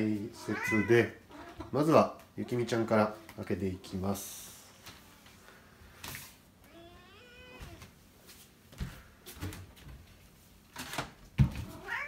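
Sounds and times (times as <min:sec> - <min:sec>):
cat meowing: 0:00.4 - 0:01.8, 0:06.7 - 0:07.8, 0:11.7 - 0:12.0.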